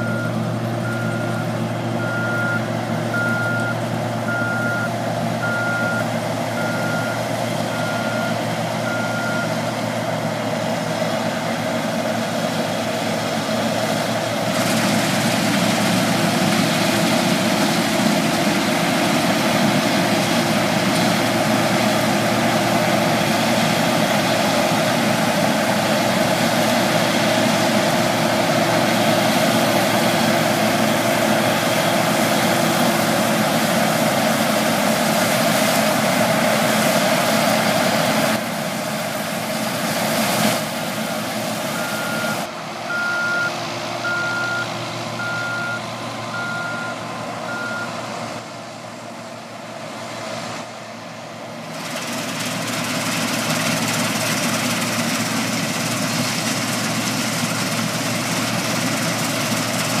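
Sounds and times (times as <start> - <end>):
reversing alarm beeps: 0.0 - 9.5, 41.8 - 47.9
combine harvester diesel engine: 0.0 - 60.0.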